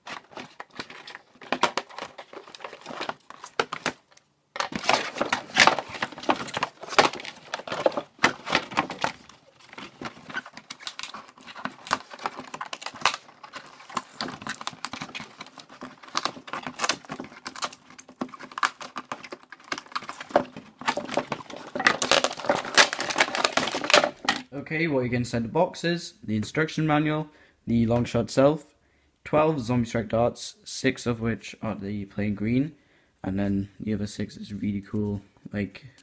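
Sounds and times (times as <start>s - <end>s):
cardboard and tape rustling: 0.0s - 24.5s.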